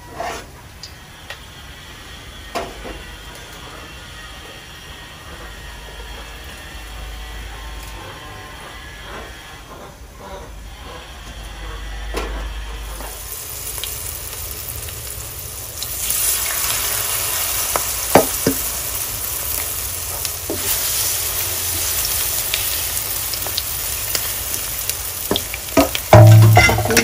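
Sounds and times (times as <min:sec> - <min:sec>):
fritters sizzling in hot oil: 0:12.9 - 0:27.0.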